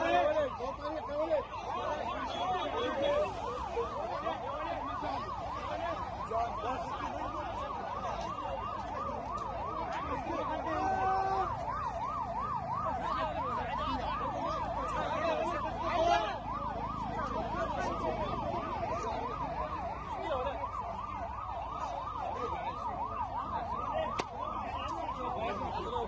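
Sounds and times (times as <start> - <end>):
crowd shouting: 0.0 - 7.9, 9.7 - 11.7
ambulance siren yelping: 0.0 - 26.0.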